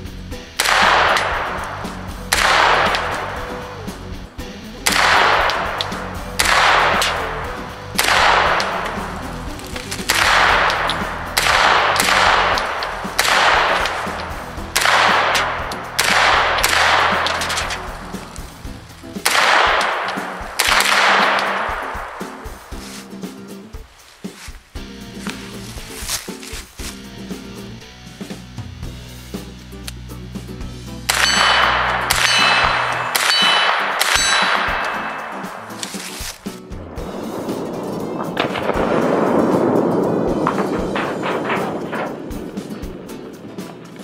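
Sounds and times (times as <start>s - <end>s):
rifle gunshots: 0.5s - 3.7s, 4.8s - 23.0s, 31.1s - 36.5s, 37.6s - 42.3s
gunshot echo: 0.5s - 4.0s, 4.8s - 23.2s, 31.1s - 44.0s.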